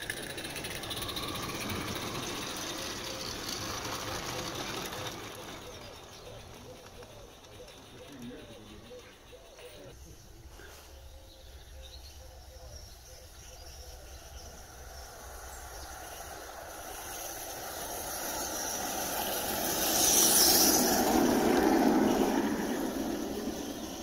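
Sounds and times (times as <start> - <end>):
steam locomotive running: 0.0 - 24.0
wheels rumbling on rails: 0.0 - 24.0
hiss of steam: 14.7 - 24.0.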